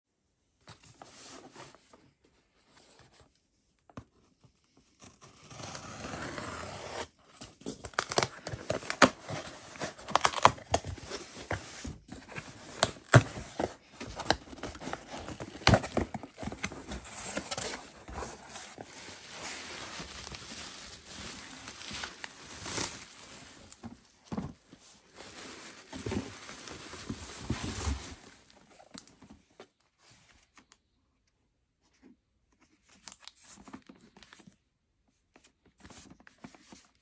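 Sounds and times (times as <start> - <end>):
packing tape tearing: 7.8 - 11.1.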